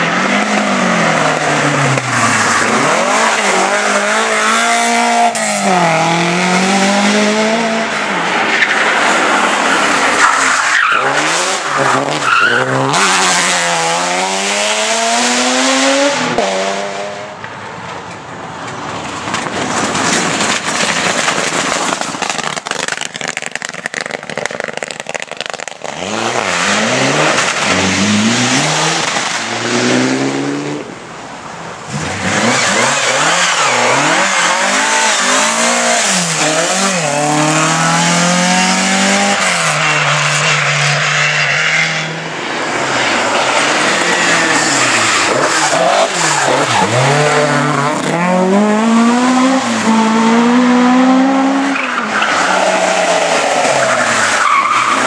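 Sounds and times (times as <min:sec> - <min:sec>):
rally car engines revving: 0:00.0 - 0:17.5, 0:18.8 - 0:31.1, 0:31.8 - 0:55.0
crackling rush of noise: 0:17.4 - 0:37.5.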